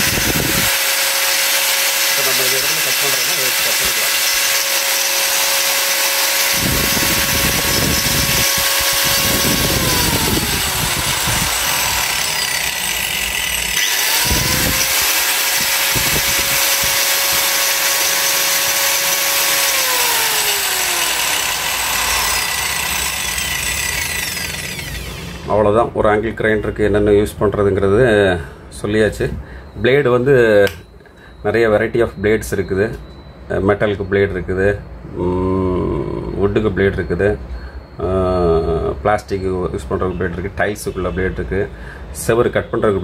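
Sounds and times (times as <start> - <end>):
angle grinder whining: 0.0 - 25.7.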